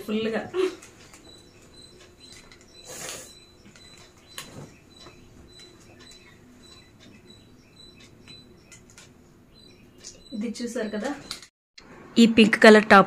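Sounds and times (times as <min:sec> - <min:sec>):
faint high-pitched chirp: 0:00.1 - 0:11.5
fabric rustling: 0:04.4 - 0:04.8.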